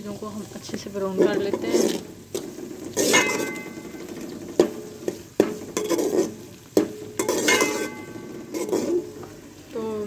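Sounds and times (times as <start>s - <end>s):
food sizzling in a pot: 0.0s - 10.0s
metal spoon stirring and scraping: 1.0s - 9.6s
spoon clinking against pot: 3.0s - 4.0s, 5.4s - 9.0s.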